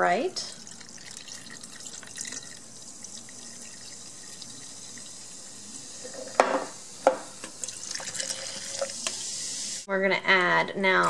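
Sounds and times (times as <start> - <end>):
soda pouring over ice: 0.6 - 6.4, 7.6 - 9.2.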